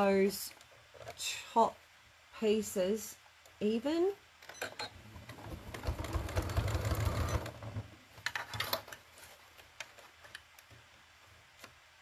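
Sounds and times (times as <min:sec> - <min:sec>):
sewing machine stitching: 0:04.6 - 0:09.0.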